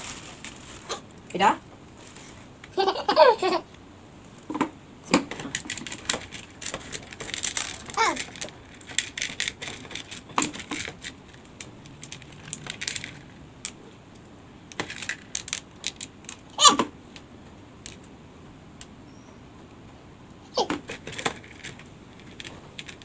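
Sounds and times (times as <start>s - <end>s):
small hard pieces clicking on plastic: 5.1s - 13.8s, 14.7s - 16.5s, 20.8s - 23.0s.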